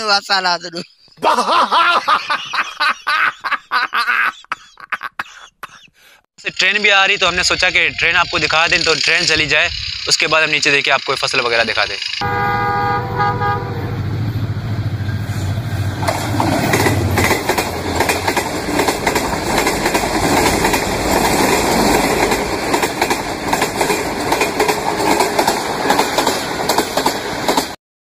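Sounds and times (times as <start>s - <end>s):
locomotive engine drone: 7.1s - 24.2s
train wheels clattering on rails: 15.7s - 27.8s.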